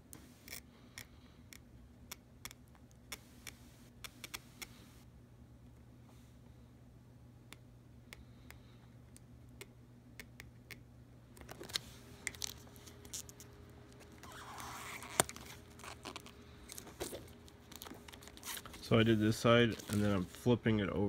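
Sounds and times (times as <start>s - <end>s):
plastic sheet crinkling: 11.5s - 20.6s.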